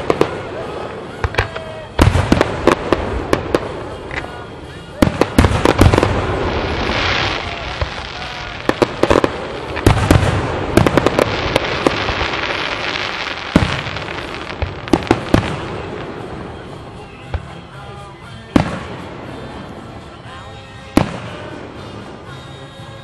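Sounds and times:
hissing crackle: 0.0 - 17.8
fireworks bangs: 0.0 - 22.5.

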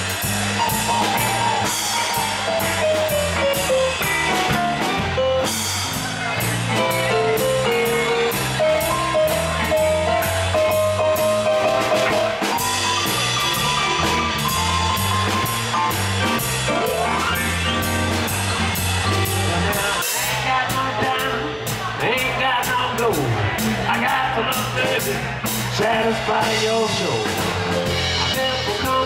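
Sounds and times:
electric guitar lead: 0.0 - 21.8
bass guitar: 0.0 - 29.0
drum kit with cymbals: 0.0 - 29.0.

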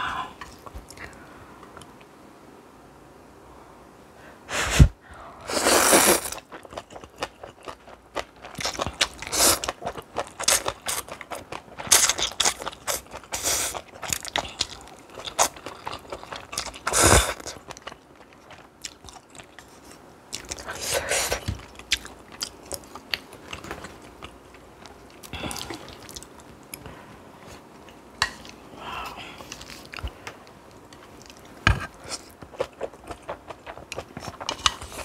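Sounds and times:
crunchy wet chewing: 6.0 - 26.8.

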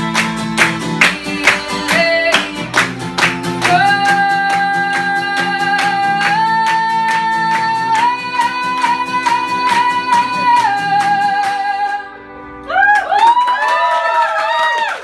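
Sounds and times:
hand claps: 0.0 - 11.7, 12.8 - 15.0
strummed acoustic guitar: 0.0 - 12.6
woman singing: 0.7 - 12.3.

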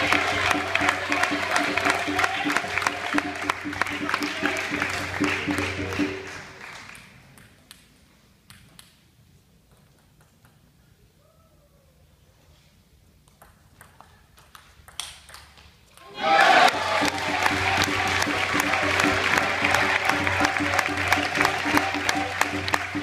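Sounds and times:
crowd noise: 0.0 - 7.3, 16.0 - 23.0
music: 0.0 - 7.4, 16.2 - 23.0.

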